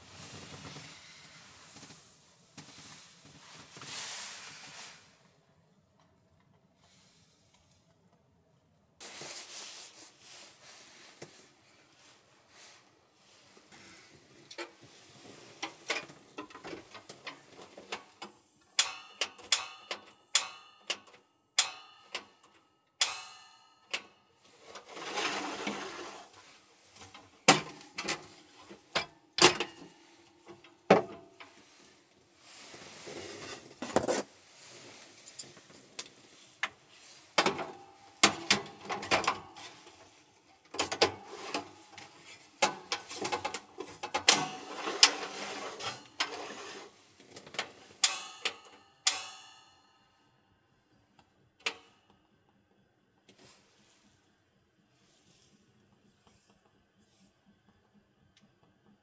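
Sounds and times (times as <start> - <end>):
soft rustling: 0.0 - 5.4, 9.0 - 15.6.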